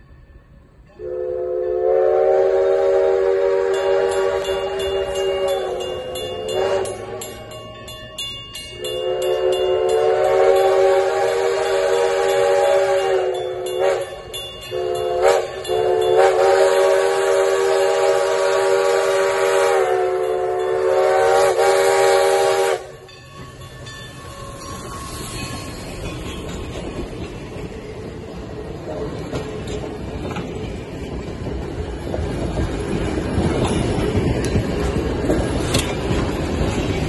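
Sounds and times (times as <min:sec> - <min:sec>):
steam locomotive chime whistle: 0:00.0 - 0:27.1
train wheels rumbling on rail: 0:00.0 - 0:37.0.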